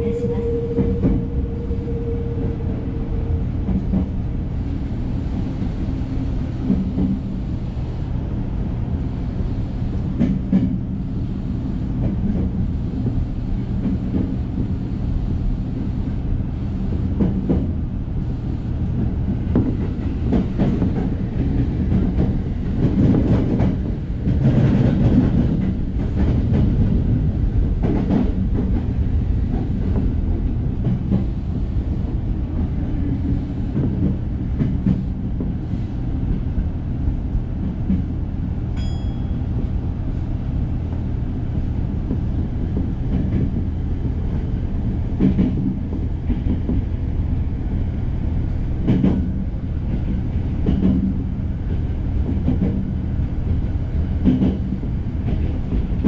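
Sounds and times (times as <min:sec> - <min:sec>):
steady tone: 0:00.0 - 0:04.4
train running gear rumble and hum: 0:00.0 - 0:56.0.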